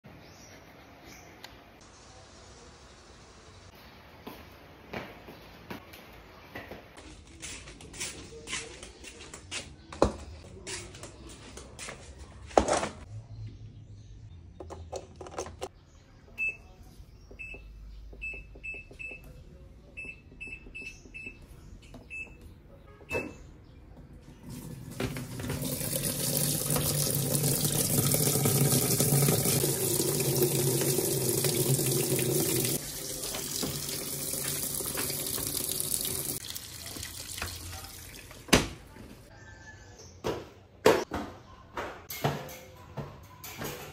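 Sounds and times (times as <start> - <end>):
water rushing into washing machine: 24.4 - 38.5.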